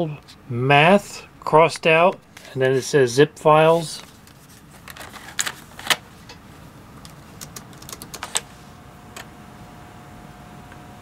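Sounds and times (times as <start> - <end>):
floppy drive humming: 0.0 - 11.0
laptop keyboard keystrokes: 7.0 - 8.4.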